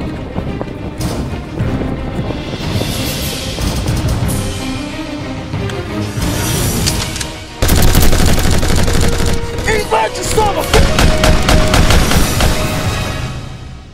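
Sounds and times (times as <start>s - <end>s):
dramatic soundtrack music: 0.0s - 13.9s
automatic rifle fire: 7.6s - 9.6s, 10.8s - 12.7s.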